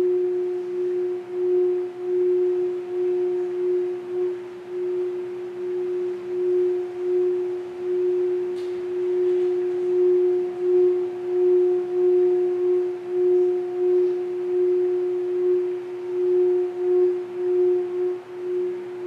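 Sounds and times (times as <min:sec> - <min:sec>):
singing bowl ringing: 0:00.0 - 0:19.0.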